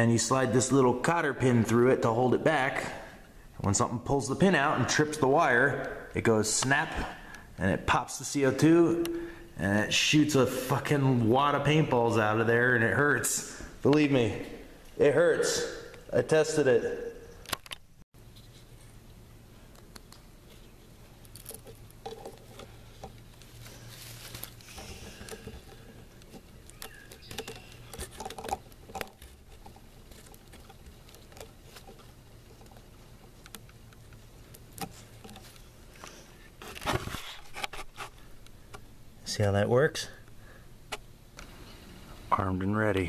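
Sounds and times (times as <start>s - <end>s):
small clicks taps and rustles: 19.7s - 35.7s.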